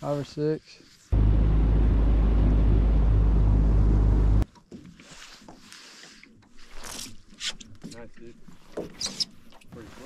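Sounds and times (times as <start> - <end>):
outboard motor running: 1.2 - 4.4.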